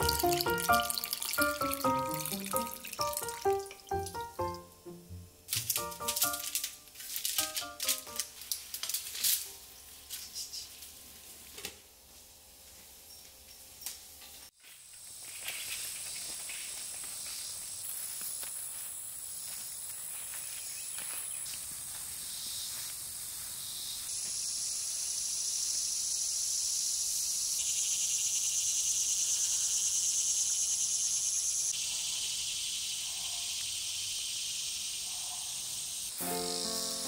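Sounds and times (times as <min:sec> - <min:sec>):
high-pitched insect chorus: 0:14.6 - 0:37.0.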